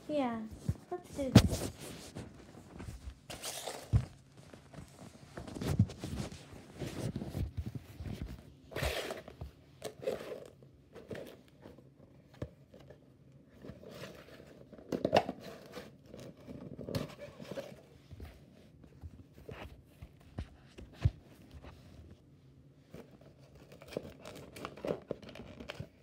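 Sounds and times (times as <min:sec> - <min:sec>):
paper gift bag rustling: 0:00.8 - 0:07.8.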